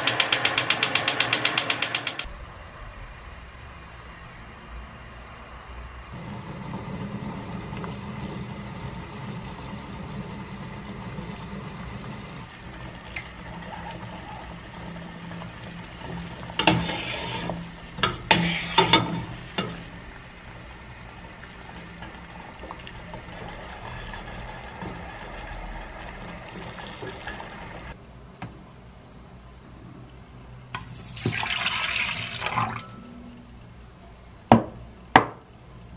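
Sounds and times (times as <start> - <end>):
broth boiling in a pot: 6.1 - 28.0, 30.8 - 32.9.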